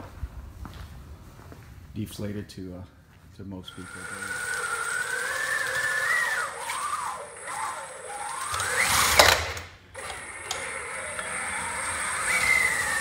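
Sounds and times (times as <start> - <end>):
electric drive motors whining: 3.7 - 13.0.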